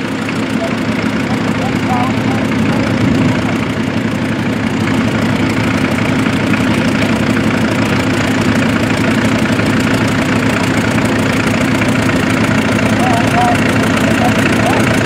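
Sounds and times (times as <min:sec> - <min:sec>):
tractor engine running: 0:00.0 - 0:15.0.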